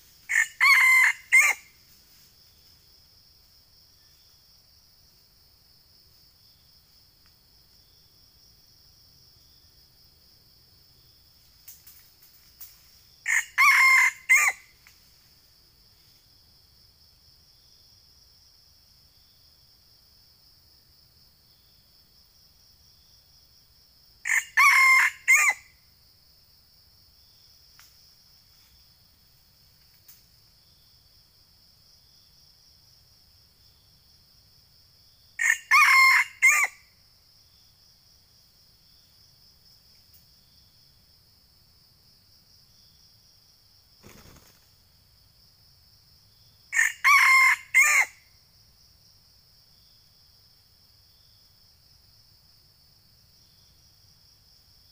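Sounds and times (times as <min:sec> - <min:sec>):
high insect drone: 0:00.0 - 0:54.9
rooster crowing: 0:00.3 - 0:01.7, 0:13.2 - 0:14.7, 0:24.2 - 0:25.7, 0:35.4 - 0:36.8, 0:46.7 - 0:48.2.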